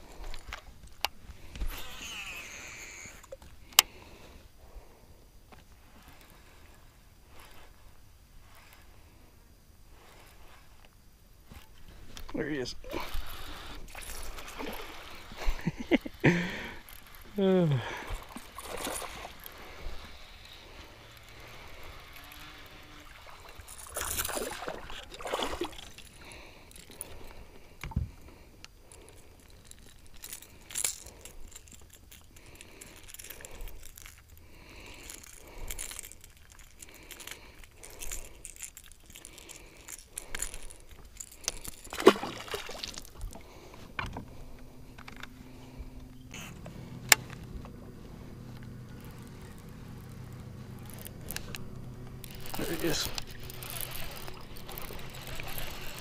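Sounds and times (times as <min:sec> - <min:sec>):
low steady hum: 0:00.0 - 0:56.0
metal jangle of fishing hooks: 0:29.0 - 0:43.2, 0:49.0 - 0:56.0
fish splashing at surface: 0:41.9 - 0:43.3.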